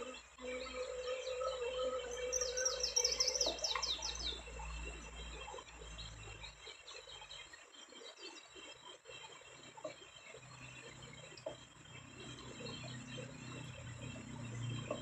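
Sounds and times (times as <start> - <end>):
songbird singing: 0.0 - 15.0.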